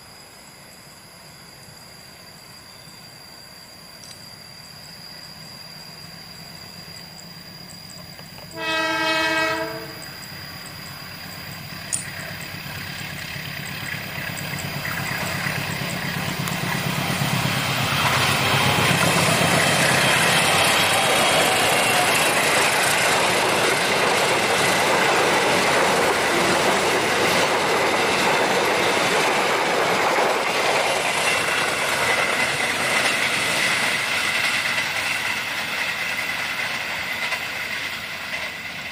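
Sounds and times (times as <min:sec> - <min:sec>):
train wheels on rails: 0:00.0 - 0:38.9
train horn blast: 0:08.4 - 0:10.2, 0:26.3 - 0:27.0.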